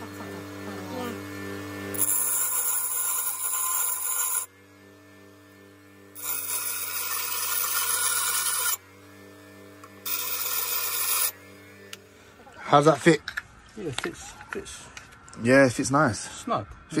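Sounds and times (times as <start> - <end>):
bench grinder grinding metal: 0.0 - 12.8
grinder motor humming: 0.0 - 14.1.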